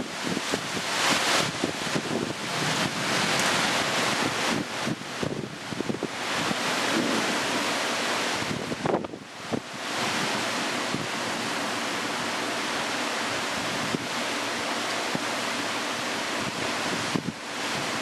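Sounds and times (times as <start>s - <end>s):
rain and wind rushing: 0.0s - 18.0s.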